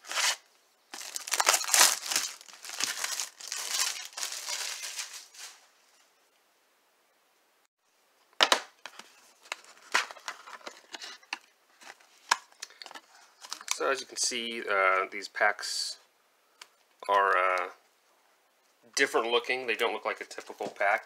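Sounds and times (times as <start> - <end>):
plastic shrink wrap crinkling: 0.0 - 5.6.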